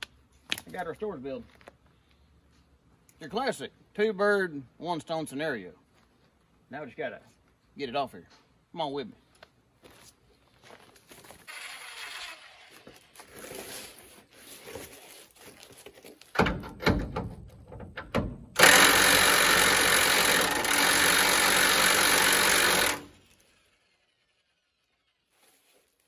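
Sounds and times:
quiet shuffling: 5.8 - 11.5, 12.8 - 16.3
electric power tool running: 11.5 - 13.0, 18.6 - 24.6.

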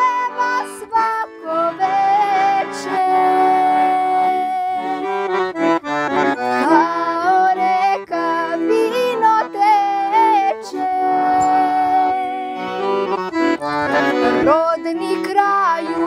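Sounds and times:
accordion playing folk tune: 0.0 - 16.0.

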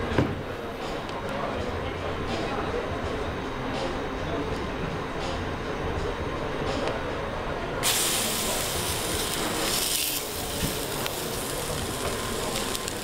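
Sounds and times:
patty sizzling in frying pan: 7.8 - 13.0.

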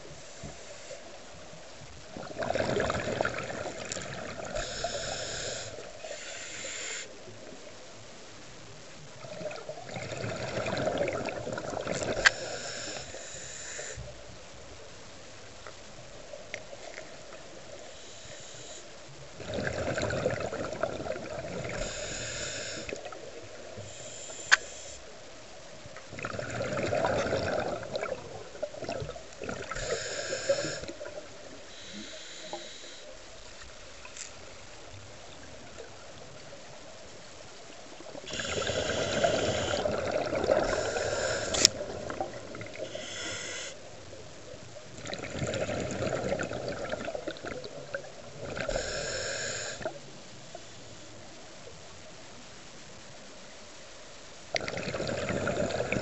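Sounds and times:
exhaled bubbles: 2.1 - 5.7, 9.2 - 13.1, 19.4 - 23.2, 26.1 - 31.5, 38.1 - 43.3, 45.0 - 50.0, 54.5 - 56.0
diver breathing through regulator: 4.4 - 7.1, 12.1 - 14.1, 17.8 - 18.9, 21.6 - 23.1, 23.8 - 25.0, 29.6 - 31.1, 31.7 - 33.2, 38.3 - 41.8, 42.8 - 43.8, 48.5 - 50.0.

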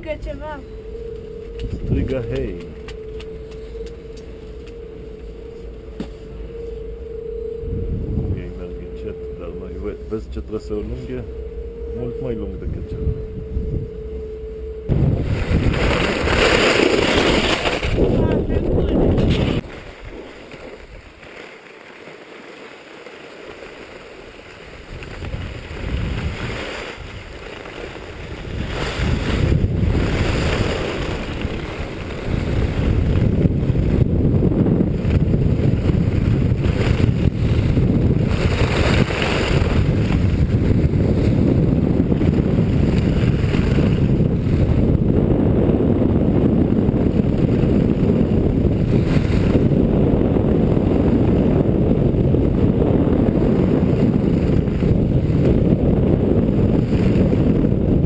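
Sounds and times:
wind rushing over microphone: 0.0 - 21.2, 24.3 - 58.0
skis scraping on snow: 15.2 - 18.1, 19.3 - 33.4, 35.0 - 40.9.

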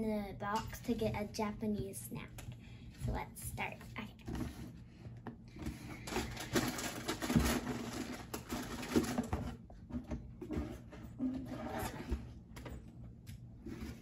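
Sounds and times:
plastic wrappers rustling: 5.9 - 9.4.

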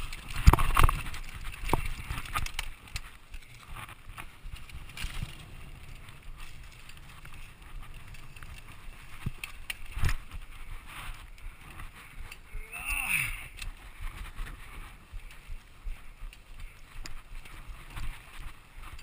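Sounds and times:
bike rattles and knocks: 0.0 - 12.7, 13.4 - 19.0
tyres rumbling on dirt: 3.5 - 10.5.

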